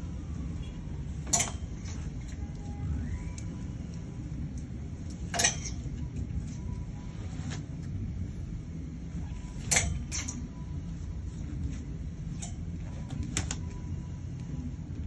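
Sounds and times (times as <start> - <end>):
low background hum: 0.0 - 15.0
clothes hangers scraping on rail: 1.2 - 2.5, 5.2 - 7.9, 9.4 - 10.5.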